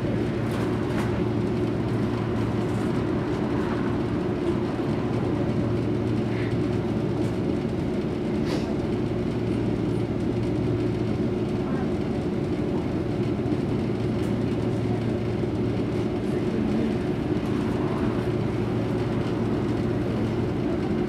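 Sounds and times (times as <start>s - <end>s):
tram equipment humming: 0.0s - 21.0s.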